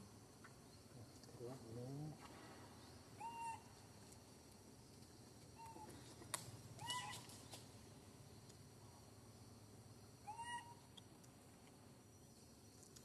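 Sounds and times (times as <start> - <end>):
baby monkey coo calls: 3.2 - 3.7, 6.8 - 7.3, 10.2 - 10.9.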